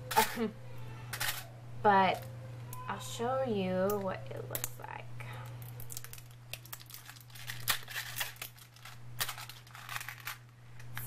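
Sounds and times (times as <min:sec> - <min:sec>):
plastic wrapping crinkling and tearing: 0:05.5 - 0:11.0.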